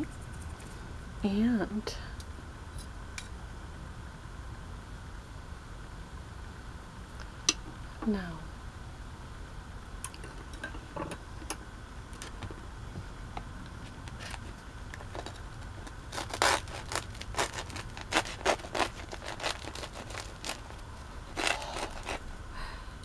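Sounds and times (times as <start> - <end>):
knife cutting crusty bread: 15.0 - 22.2.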